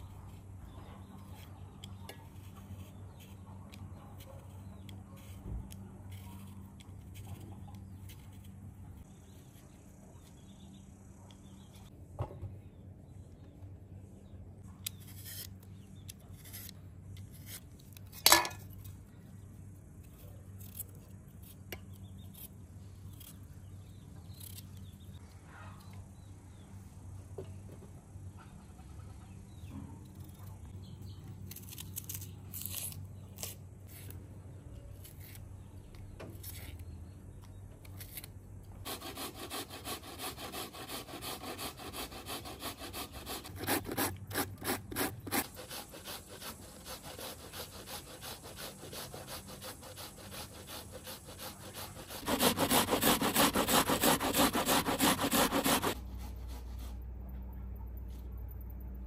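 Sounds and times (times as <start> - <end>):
grating on metal grater: 38.9 - 56.0.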